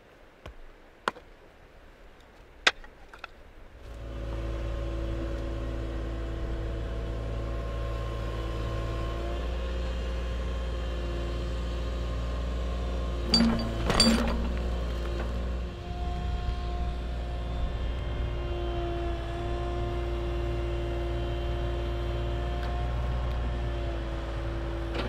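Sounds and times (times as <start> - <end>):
excavator engine running: 12.1 - 20.0.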